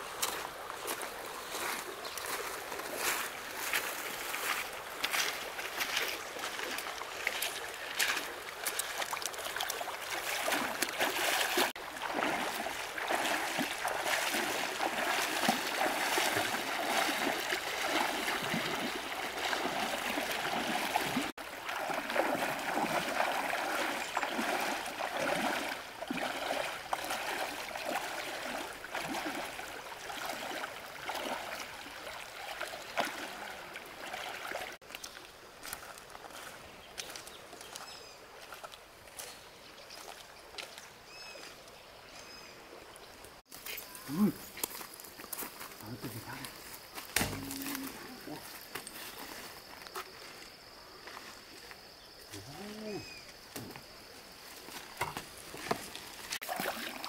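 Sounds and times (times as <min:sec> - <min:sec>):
water running and splashing: 0:00.0 - 0:37.2, 0:53.6 - 0:57.0.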